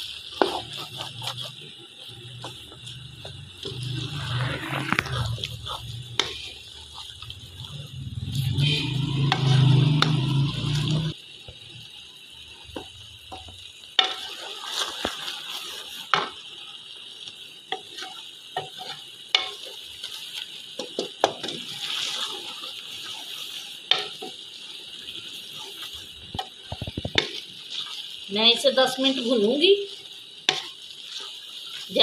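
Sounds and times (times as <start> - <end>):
wooden spoon scraping pot: 0.0 - 11.1
chickpeas sizzling in ghee: 0.0 - 32.0.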